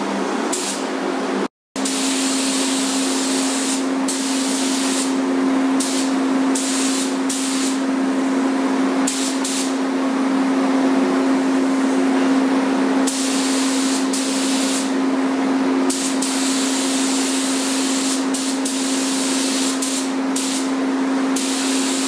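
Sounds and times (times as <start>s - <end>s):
paint spray gun hissing: 1.8s - 5.2s, 5.8s - 7.8s, 13.1s - 14.9s, 15.9s - 20.7s, 21.4s - 22.0s.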